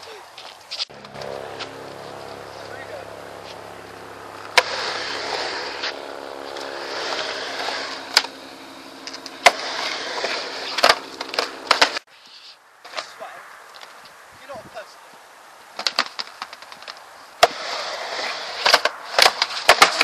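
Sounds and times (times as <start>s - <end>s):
skateboard wheels rolling on concrete: 0.0s - 20.0s
skateboard clacking on concrete: 9.1s - 12.0s, 15.8s - 20.0s.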